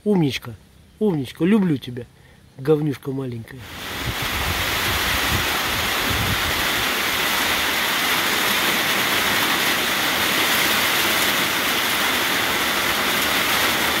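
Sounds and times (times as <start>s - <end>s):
rain falling steadily: 3.6s - 14.0s.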